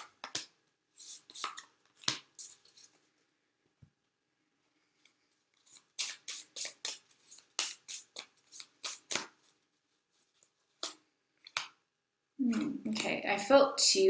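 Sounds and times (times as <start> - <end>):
cards shuffling with crisp slaps: 0.0 - 3.0, 5.0 - 9.6, 10.2 - 11.8.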